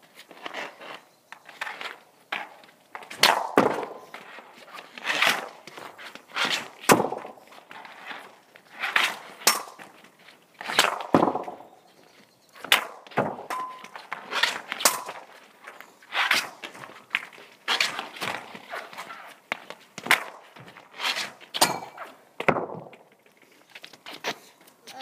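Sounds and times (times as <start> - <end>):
hockey stick hitting puck: 2.4 - 4.4, 6.4 - 8.2, 8.8 - 10.0, 10.6 - 11.7, 12.6 - 15.4, 16.1 - 23.0
puck hitting net or boards: 2.4 - 11.8, 12.6 - 15.5, 16.1 - 23.1.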